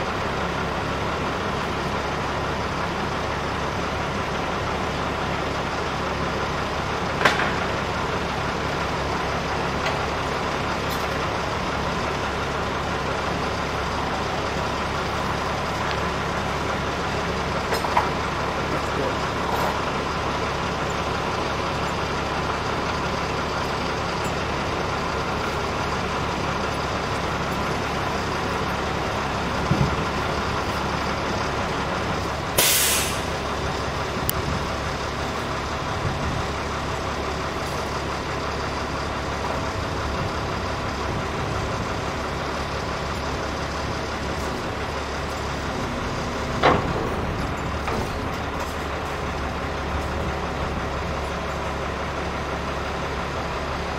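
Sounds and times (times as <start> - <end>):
truck diesel engine running: 0.0 - 53.9
air brake hiss: 32.6 - 33.4.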